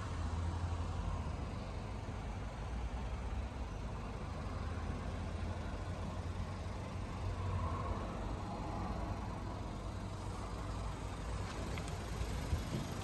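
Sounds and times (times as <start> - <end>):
car engine idling: 5.2 - 13.0.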